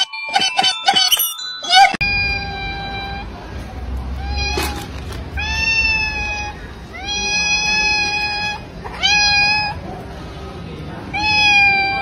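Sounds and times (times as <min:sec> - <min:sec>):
cat meowing: 0:04.2 - 0:09.8, 0:11.1 - 0:12.0.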